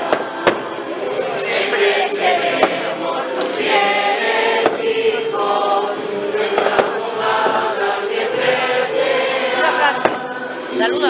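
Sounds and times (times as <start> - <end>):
rocket bangs: 0.0 - 0.9, 6.4 - 7.7
crowd singing a hymn: 0.0 - 11.0.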